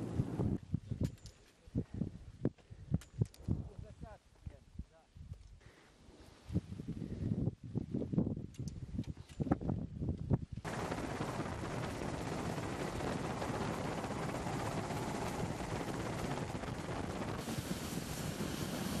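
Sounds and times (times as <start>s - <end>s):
aircraft cabin noise: 10.7s - 19.0s.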